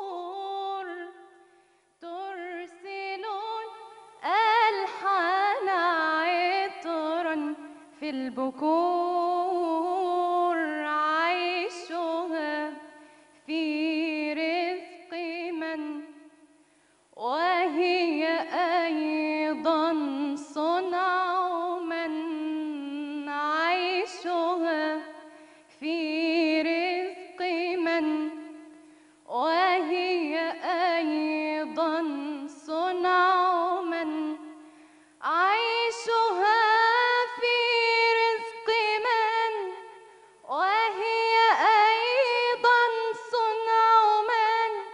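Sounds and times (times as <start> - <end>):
woman singing unaccompanied: 0.0 - 44.9.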